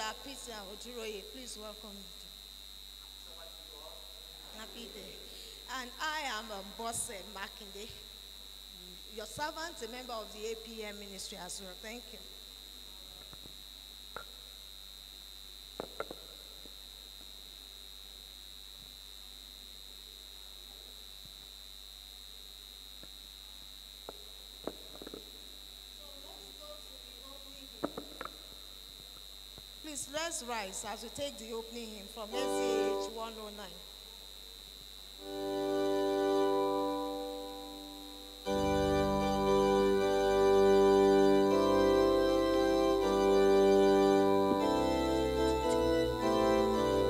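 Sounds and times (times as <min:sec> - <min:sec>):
high-pitched electronic whine: 0:32.2 - 0:47.0
organ playing sustained chords: 0:32.3 - 0:33.4, 0:35.2 - 0:47.0.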